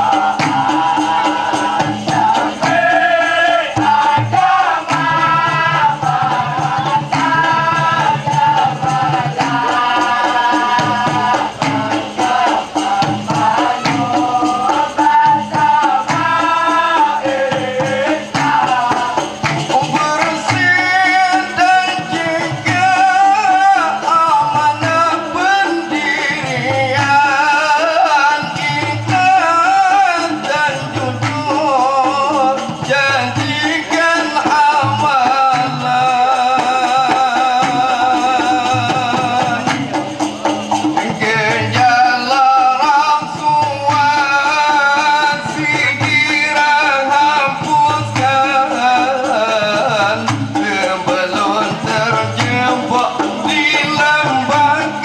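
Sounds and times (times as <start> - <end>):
group singing: 0.0 - 55.0.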